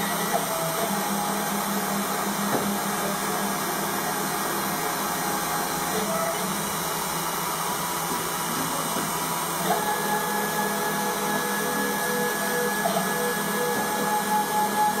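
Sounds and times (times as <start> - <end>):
spindle motor whirring: 0.0 - 15.0
stepper motor whine: 9.1 - 15.0.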